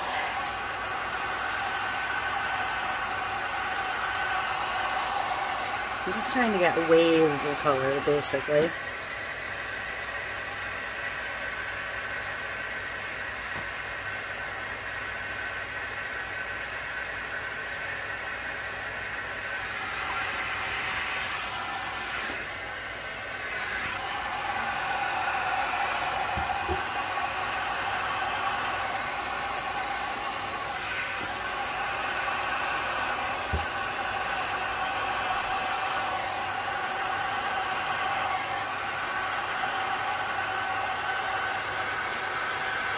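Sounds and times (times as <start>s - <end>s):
heat gun blowing air: 0.0s - 42.9s
small electric machine whirring: 19.5s - 42.9s.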